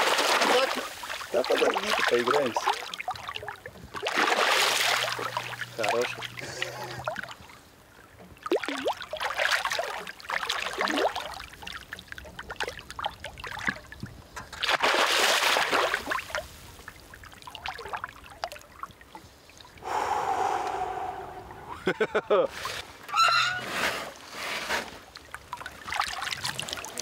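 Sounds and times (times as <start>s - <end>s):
fish thrashing and splashing: 0.0s - 7.4s, 8.4s - 13.9s, 14.6s - 16.4s, 25.1s - 27.0s.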